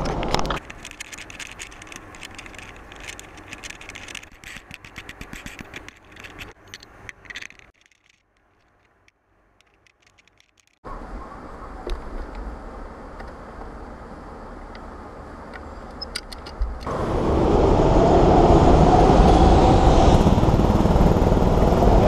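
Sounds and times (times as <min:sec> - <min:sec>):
camera handling clicks and rattles: 0:00.0 - 0:10.8, 0:15.5 - 0:16.9.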